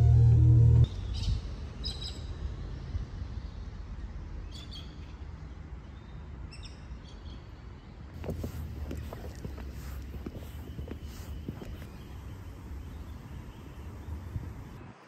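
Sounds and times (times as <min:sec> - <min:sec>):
birds chirping: 0:08.2 - 0:14.8
low outdoor rumble: 0:08.2 - 0:14.9.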